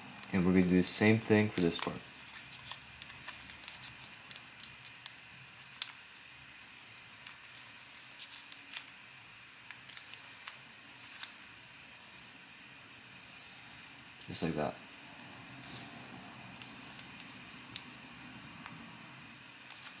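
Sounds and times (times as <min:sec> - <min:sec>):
steady hiss: 0:00.0 - 0:20.0
paper crinkling and clicking: 0:01.4 - 0:06.0, 0:07.2 - 0:09.0, 0:09.6 - 0:11.4, 0:19.6 - 0:20.0.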